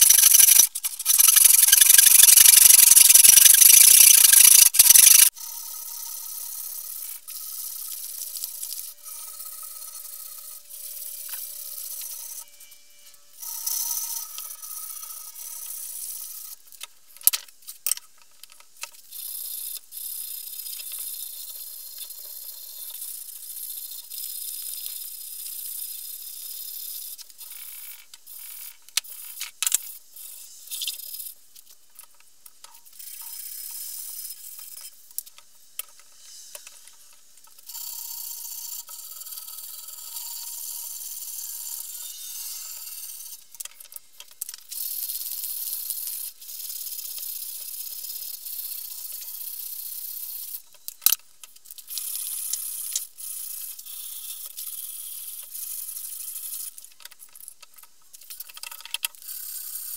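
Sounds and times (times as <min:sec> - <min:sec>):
sandpaper rasping on wood: 0:00.0 - 0:05.3
sharp clicks: 0:00.0 - 0:05.3.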